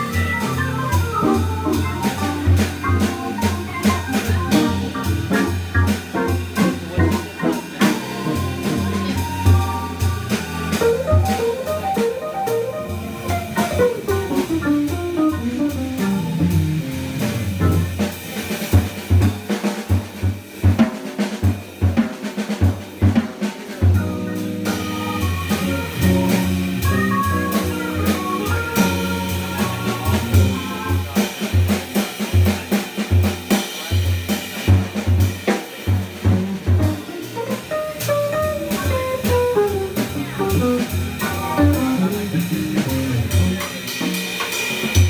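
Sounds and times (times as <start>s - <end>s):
organ bass notes: 0.0s - 18.1s, 23.9s - 31.1s, 36.2s - 43.8s
drum kit playing: 0.0s - 45.0s.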